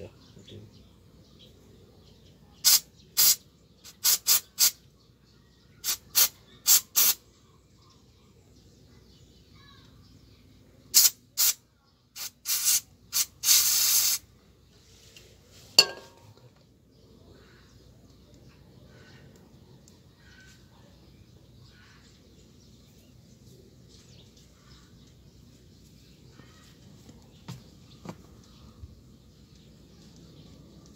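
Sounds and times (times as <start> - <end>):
aerosol spray hissing bursts: 2.6 - 4.8, 5.8 - 7.2, 11.0 - 11.6, 12.2 - 14.2.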